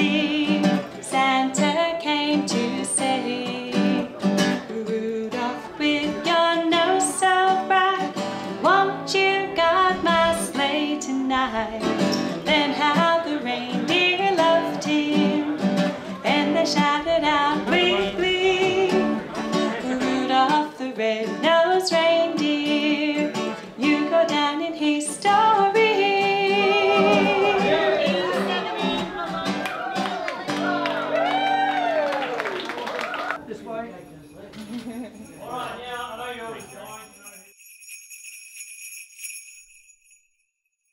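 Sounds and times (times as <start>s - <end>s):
woman singing: 0.0s - 29.6s
acoustic guitar strumming: 0.0s - 31.2s.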